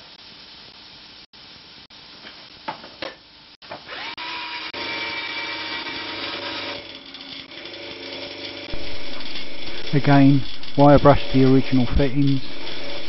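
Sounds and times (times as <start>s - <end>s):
electric drill whining: 3.8s - 13.0s
wire brush scouring metal: 5.6s - 13.0s.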